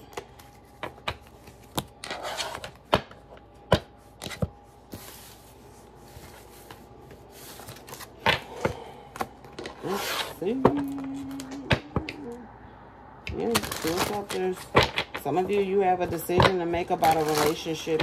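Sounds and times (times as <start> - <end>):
cards shuffling: 0.0 - 8.5, 13.3 - 16.2, 16.9 - 18.0.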